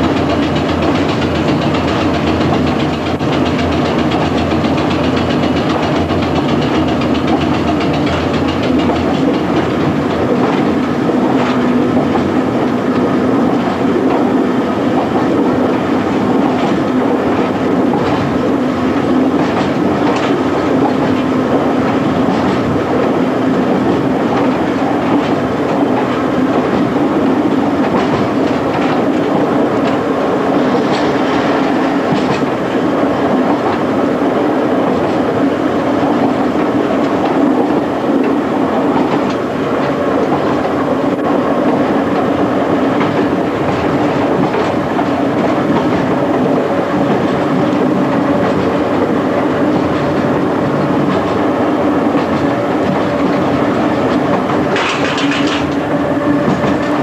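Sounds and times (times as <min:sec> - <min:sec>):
wheels clicking over rail joints: 0:00.0 - 0:30.0, 0:49.7 - 0:57.0
electric train rumble and hum: 0:00.0 - 0:57.0.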